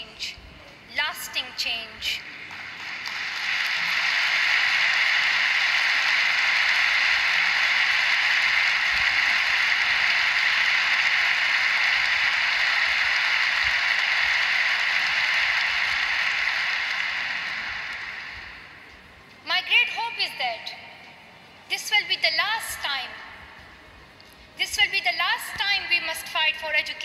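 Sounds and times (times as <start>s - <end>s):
audience applauding: 2.4s - 18.8s.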